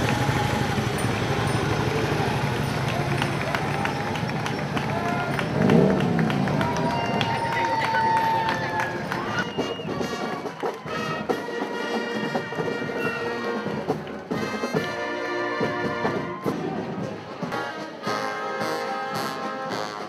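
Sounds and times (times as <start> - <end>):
brass band playing: 8.7 - 20.0.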